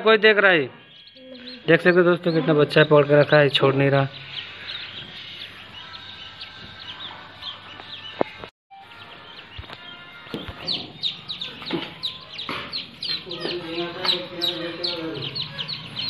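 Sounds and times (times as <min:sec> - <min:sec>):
ducklings peeping: 0:00.7 - 0:16.0.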